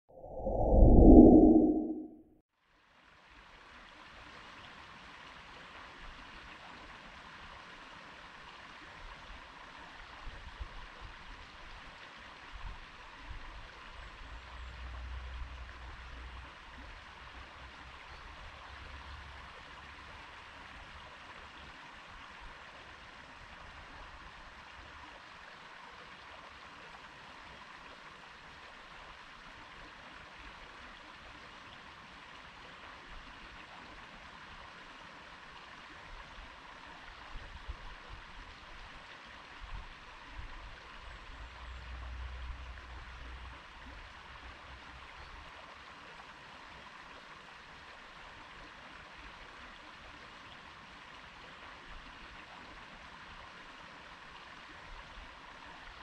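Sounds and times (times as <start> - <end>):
low rumble: 0.0 - 2.3
stream water flowing: 3.0 - 56.0.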